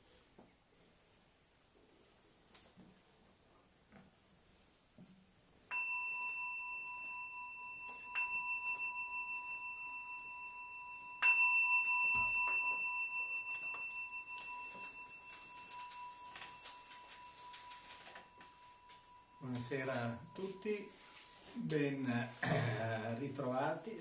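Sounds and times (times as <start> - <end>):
small bowl bell ringing: 5.7 - 21.5.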